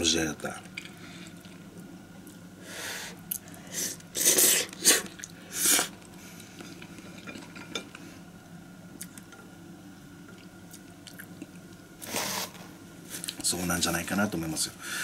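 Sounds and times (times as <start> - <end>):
person slurping noodles: 12.0 - 12.7.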